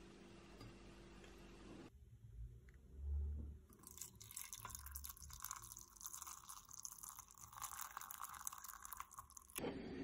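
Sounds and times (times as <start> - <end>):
water pouring into teapot: 3.7 - 9.6.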